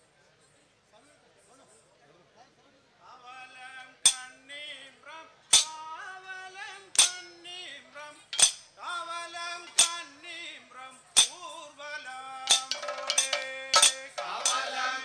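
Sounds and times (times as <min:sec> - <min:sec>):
metallic percussion strokes: 0:05.6 - 0:05.8, 0:09.7 - 0:10.0, 0:12.5 - 0:15.0
men singing slow song: 0:11.4 - 0:15.0.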